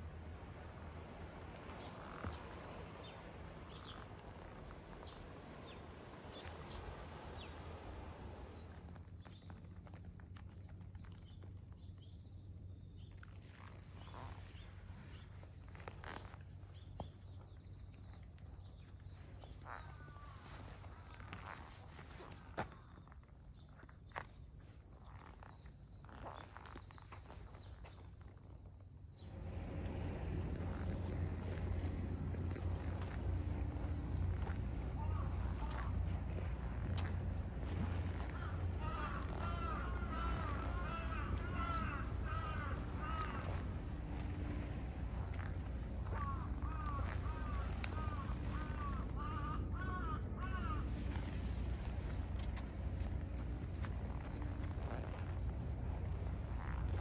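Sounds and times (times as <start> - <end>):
steady low hiss: 0.0 - 13.1, 28.8 - 57.0
insect chirping: 0.0 - 57.0.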